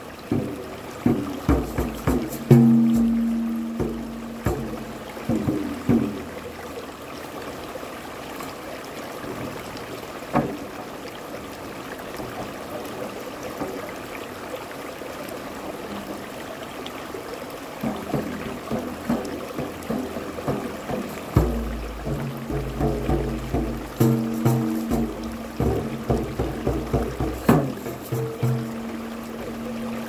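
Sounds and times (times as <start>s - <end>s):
stream running over rocks: 0.0s - 30.0s
hand drum hit: 0.3s - 6.4s, 17.8s - 30.0s
soft drum taps: 0.3s - 6.4s, 17.8s - 30.0s.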